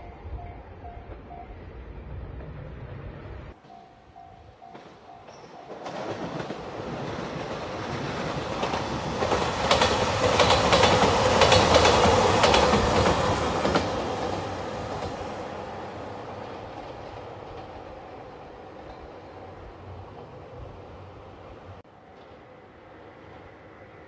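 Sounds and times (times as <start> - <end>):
diesel train passing: 0.0 - 24.0
wheels clacking over rail joints: 2.4 - 20.6.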